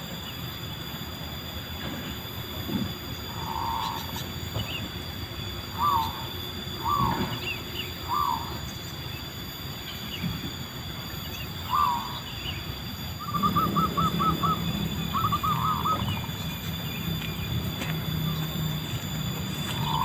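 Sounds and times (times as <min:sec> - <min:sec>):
low steady hum: 0:00.0 - 0:20.0
dove cooing: 0:03.3 - 0:04.7, 0:05.7 - 0:08.6, 0:11.7 - 0:12.3, 0:13.2 - 0:16.6, 0:18.2 - 0:20.0.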